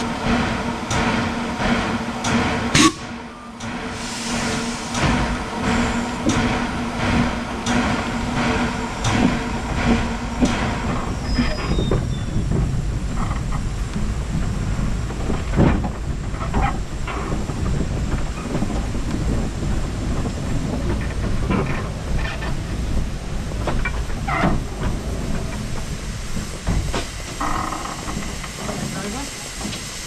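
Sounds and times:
steam locomotive wheels rumbling: 0.0 - 30.0
short squeal: 11.0 - 12.4
clanks and knocks: 20.2 - 28.9.

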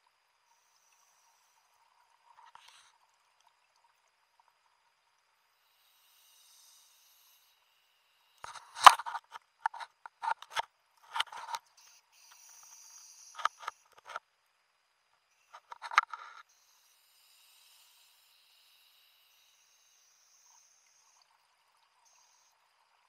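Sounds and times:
underwater clicking and scraping: 0.8 - 3.5, 8.4 - 14.2, 15.5 - 16.5.

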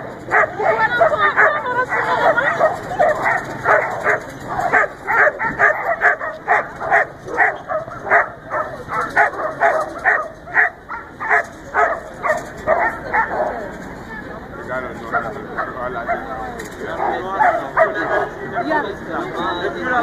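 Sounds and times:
dog barking: 0.3 - 13.6, 17.0 - 18.8.

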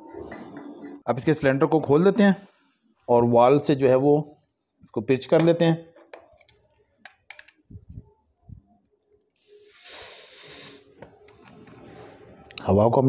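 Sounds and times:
faint tool handling clicks: 6.0 - 7.6
refrigerant gas hissing from hose: 9.4 - 11.1.

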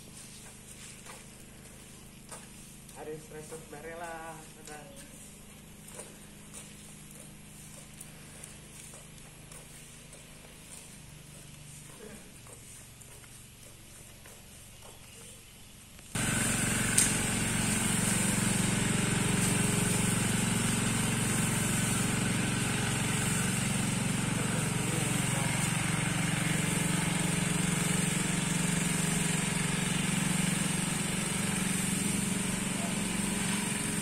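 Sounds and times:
truck engine humming: 16.2 - 34.0.

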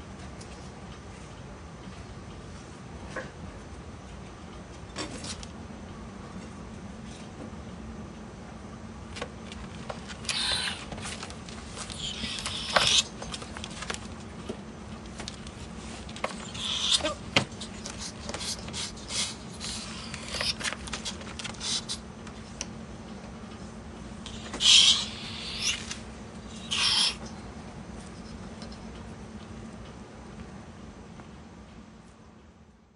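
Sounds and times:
ferrets hissing: 10.2 - 10.9, 11.8 - 13.1, 16.4 - 17.2, 18.0 - 20.7, 21.6 - 22.0, 24.3 - 27.3.

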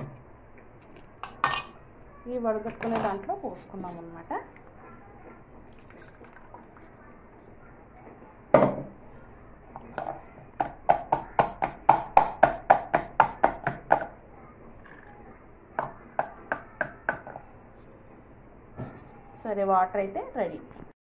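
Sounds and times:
water draining through strainer: 5.6 - 7.2.

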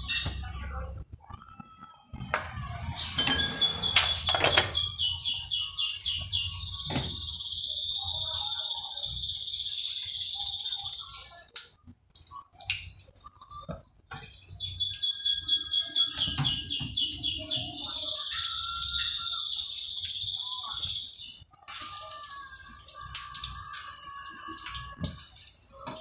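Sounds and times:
small bird singing: 2.6 - 11.4, 14.5 - 21.4.

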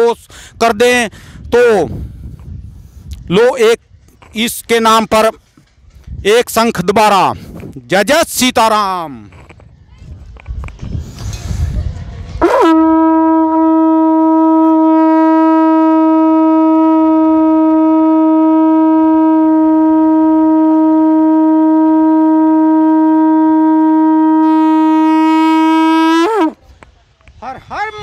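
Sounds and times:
conch shell blown: 12.4 - 26.6.

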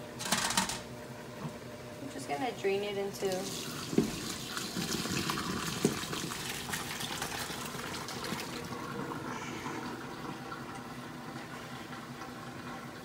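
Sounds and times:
water gushing into colander: 3.1 - 13.0.

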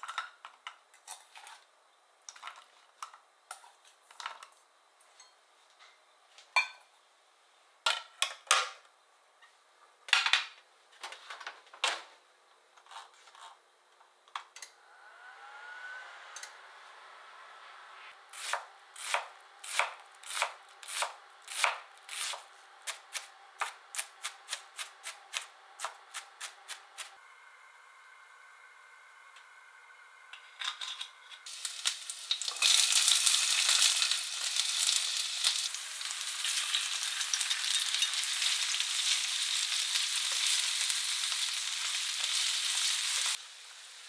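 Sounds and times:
microwave oven humming: 14.2 - 44.0
knife chopping on cutting board: 18.4 - 26.8.

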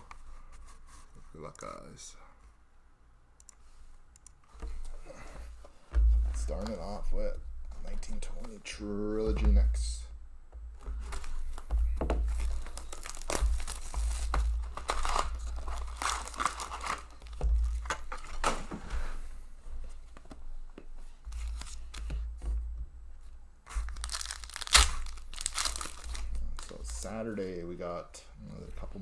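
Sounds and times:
foil packs crinkling: 10.9 - 18.6, 23.7 - 27.2
plastic wrap tearing: 12.3 - 18.5, 23.7 - 27.1.

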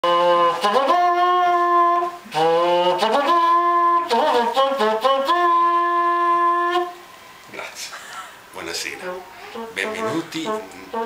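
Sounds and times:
small brass horn tune: 0.0 - 7.0, 9.0 - 11.0.

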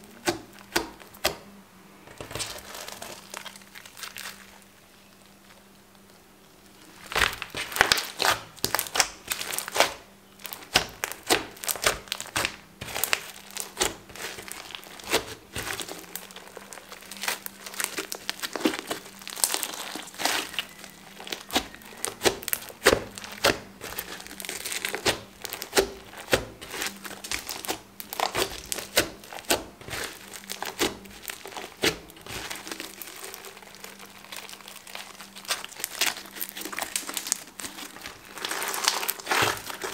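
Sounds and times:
slime crackling and clicking: 7.0 - 39.9.

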